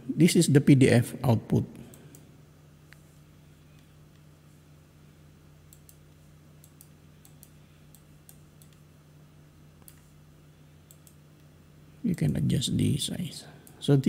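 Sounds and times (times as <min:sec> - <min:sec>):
low electrical hum: 0:00.0 - 0:14.0
computer mouse clicks: 0:05.7 - 0:08.8, 0:09.8 - 0:10.1, 0:10.9 - 0:11.2.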